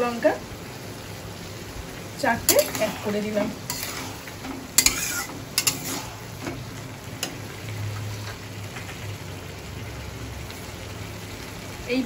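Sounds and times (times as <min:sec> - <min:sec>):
vegetables sizzling: 0:00.0 - 0:12.0
metal spatula scraping a pan: 0:02.5 - 0:06.6.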